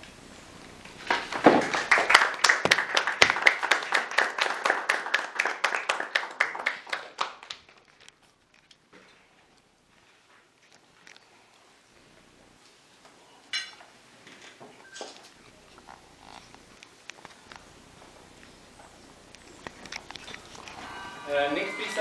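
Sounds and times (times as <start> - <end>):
audience applauding: 1.1 - 8.0.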